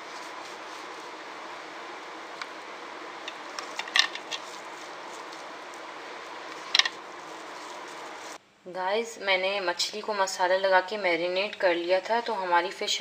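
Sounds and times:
hands rubbing marinade into fish: 0.0 - 8.4
steady background hiss: 0.0 - 13.0.

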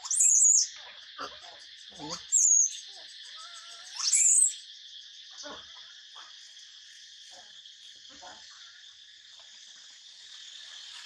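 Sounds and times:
baby monkey squealing: 0.0 - 0.7, 2.2 - 2.8, 3.4 - 4.6.

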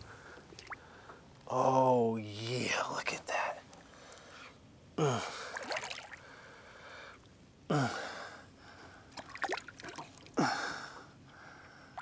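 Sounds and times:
man grunting: 5.0 - 5.4.

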